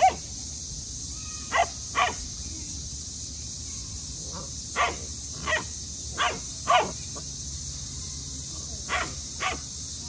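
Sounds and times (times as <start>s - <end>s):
puppy barking: 1.5s - 2.2s, 4.8s - 7.0s, 8.9s - 9.6s.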